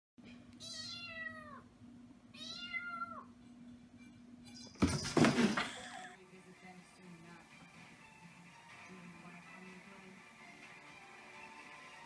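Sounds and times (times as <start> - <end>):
kitten meowing: 2.4 - 3.3.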